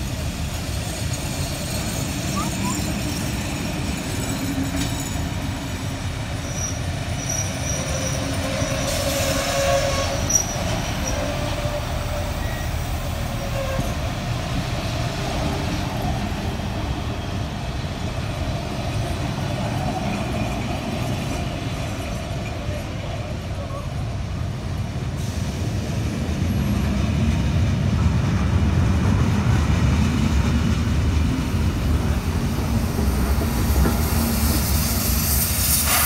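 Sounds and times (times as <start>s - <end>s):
train rumbling on rails: 0.0s - 36.0s
wheels squealing: 6.4s - 14.0s.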